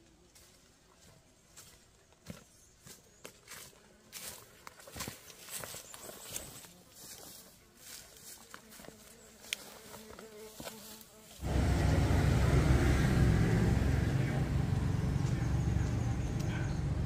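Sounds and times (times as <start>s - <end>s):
footsteps in undergrowth: 0.0s - 11.5s
low buzzing drone: 11.4s - 17.0s.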